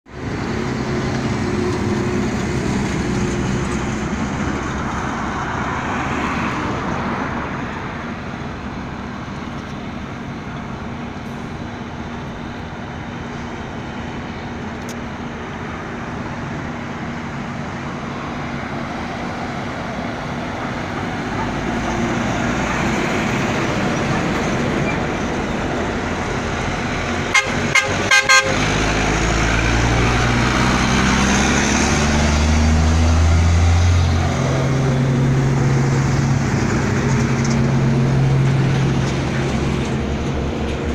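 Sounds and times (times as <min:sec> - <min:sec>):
truck diesel engine pulling away: 0:00.1 - 0:40.9
short horn toots: 0:27.3 - 0:28.6.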